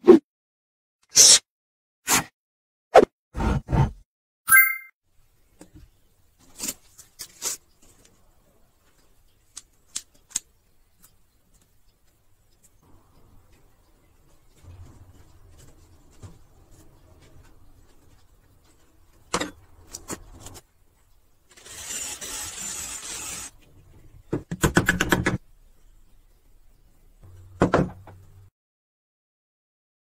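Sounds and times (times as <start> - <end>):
cordless drill boring wood: 21.5 - 23.6.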